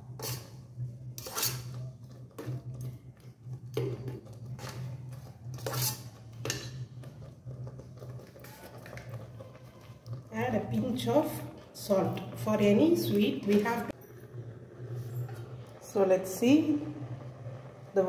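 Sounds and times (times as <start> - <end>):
metal ladle scraping a pot: 0.0 - 11.7.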